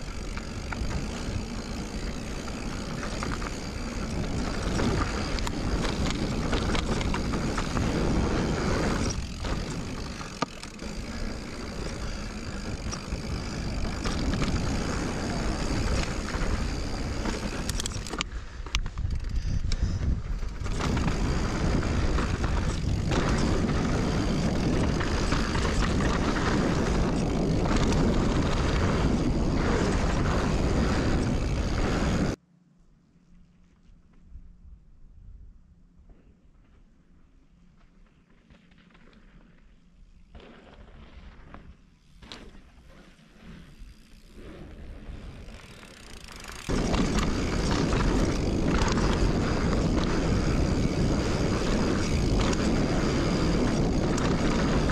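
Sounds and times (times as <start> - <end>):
bike knocks and rattles: 0.0 - 32.4, 45.4 - 54.9
bike tyre noise: 0.0 - 32.4, 36.1 - 54.9
wind buffeting microphone: 10.8 - 32.4, 46.6 - 54.9.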